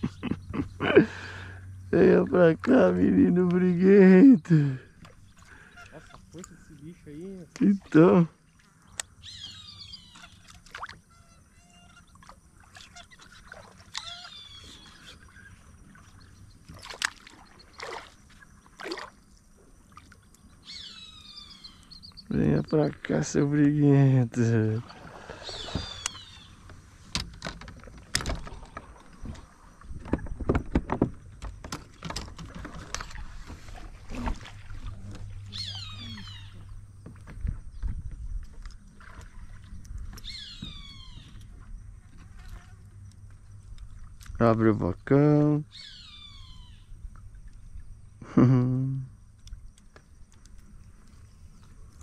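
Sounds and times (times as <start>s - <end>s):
quiet water sounds: 0.0s - 52.0s
birds whistling: 8.8s - 10.5s, 13.0s - 16.8s, 20.4s - 23.1s, 24.8s - 26.7s, 35.4s - 36.9s, 40.1s - 41.5s, 45.6s - 47.0s
knocks and clatter on kayak: 24.9s - 35.4s, 36.5s - 42.7s
knocks on kayak: 30.0s - 32.8s.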